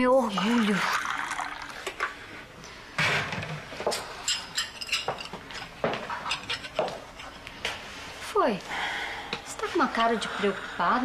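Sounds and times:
cup saucer and teaspoon clinking: 0:04.3 - 0:05.4.

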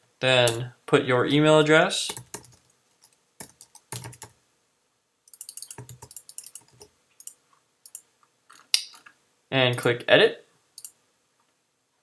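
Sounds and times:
typing on computer keyboard: 0:02.1 - 0:04.3, 0:05.3 - 0:08.0.

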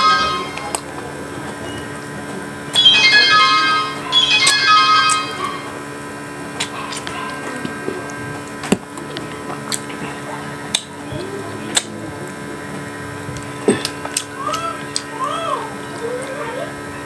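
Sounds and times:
wet chewing and smacking: 0:06.6 - 0:11.0, 0:11.7 - 0:12.4, 0:13.3 - 0:15.1.

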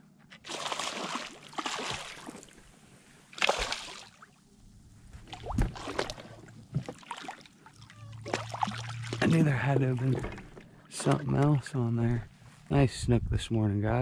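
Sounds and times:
fish thrashing and splashing: 0:00.4 - 0:02.6, 0:03.3 - 0:04.3, 0:05.2 - 0:10.4.

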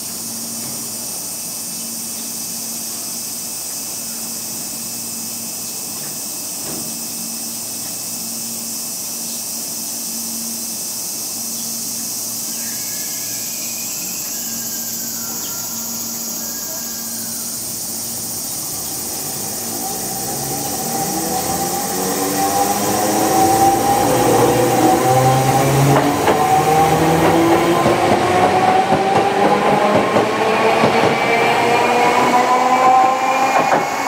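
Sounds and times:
high insect drone: 0:00.0 - 0:34.0
tram humming: 0:00.0 - 0:34.0
traction motor whine rising: 0:12.6 - 0:34.0.

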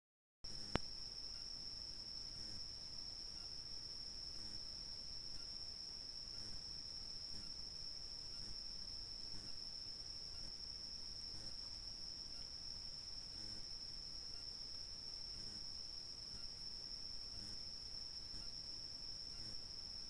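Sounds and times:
faint soft ticks: 0:00.5 - 0:01.0
night insects trilling: 0:00.5 - 0:20.0.

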